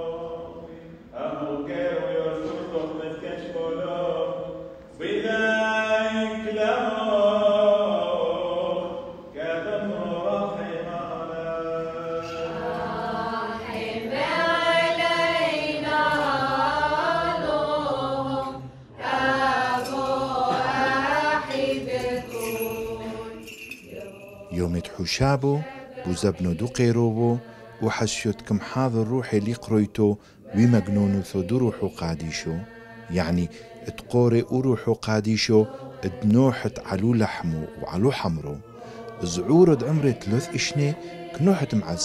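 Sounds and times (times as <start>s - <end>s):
liturgical chant: 0.0s - 42.0s
singer breathing: 27.4s - 27.8s, 30.2s - 30.5s, 33.5s - 33.8s, 38.7s - 39.2s.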